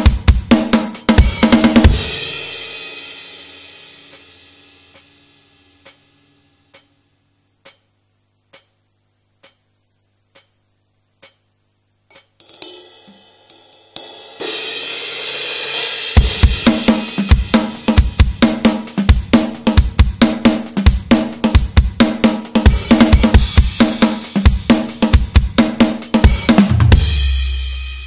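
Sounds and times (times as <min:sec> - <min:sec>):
rock drum groove: 0:00.0 - 0:06.0, 0:12.1 - 0:28.0
hi-hat ticks: 0:04.0 - 0:13.8, 0:16.5 - 0:26.6
cymbal wash: 0:12.1 - 0:18.0.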